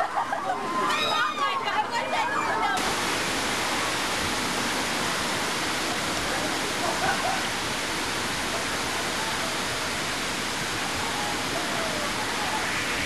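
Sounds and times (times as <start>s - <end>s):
water rushing down a flume: 2.7s - 13.0s
faint voices: 8.4s - 13.0s.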